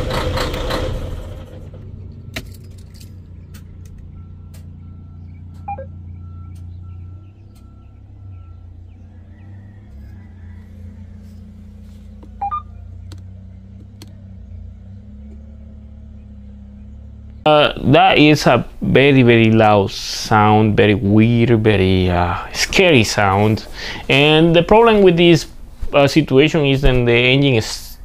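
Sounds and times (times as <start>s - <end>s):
diesel engine idling unevenly: 0.0s - 27.6s
short electronic beeps: 4.1s - 8.8s, 12.4s - 12.8s.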